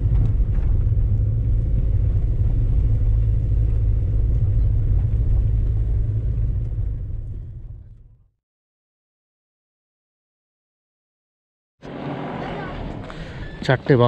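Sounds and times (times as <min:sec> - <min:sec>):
car engine and tyre rumble: 0:00.0 - 0:08.3, 0:11.8 - 0:14.0.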